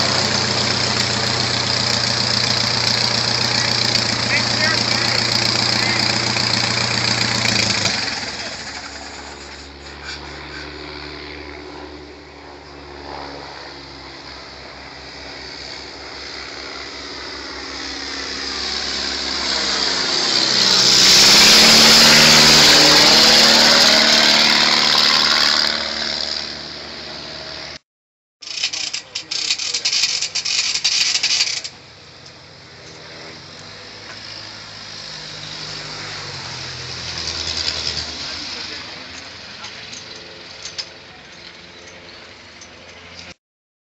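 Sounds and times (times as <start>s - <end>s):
propeller plane passing overhead: 0.0s - 27.8s, 28.4s - 43.4s
rough rushing noise: 18.6s - 27.8s.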